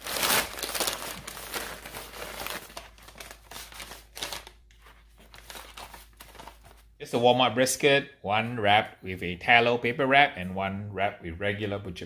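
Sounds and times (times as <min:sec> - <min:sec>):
paper and foil crinkling: 0:00.0 - 0:06.9.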